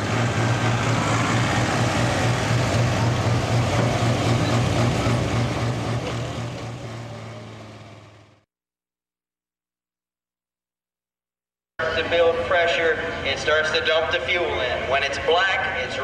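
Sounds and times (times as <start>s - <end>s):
tractor diesel engine running loud: 0.0s - 8.5s, 11.8s - 14.9s.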